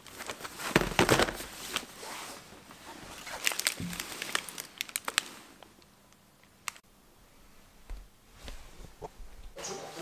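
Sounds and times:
plastic packaging crinkling: 0.0 - 2.0, 3.1 - 5.8.

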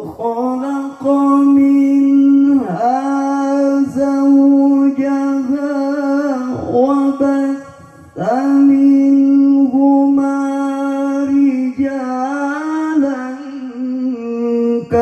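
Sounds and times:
man reciting melodically: 0.0 - 15.0.

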